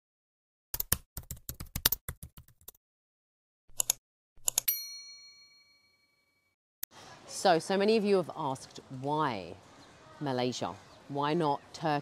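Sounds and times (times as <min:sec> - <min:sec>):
rapid keyboard typing: 0:00.8 - 0:02.8
bell chime: 0:04.7 - 0:06.4.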